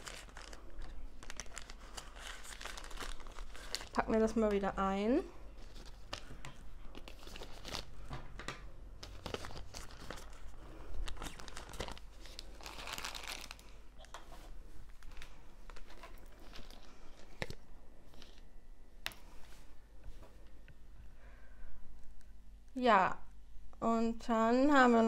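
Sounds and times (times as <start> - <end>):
packaging crinkling and rustling: 0.0 - 4.6, 5.5 - 18.6.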